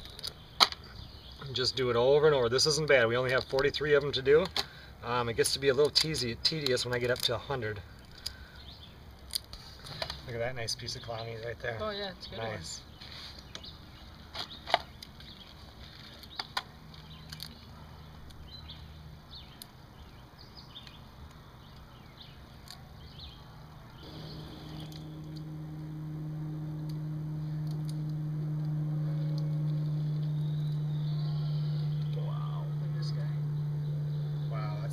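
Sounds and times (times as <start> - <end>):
low motor hum: 23.8 - 34.9.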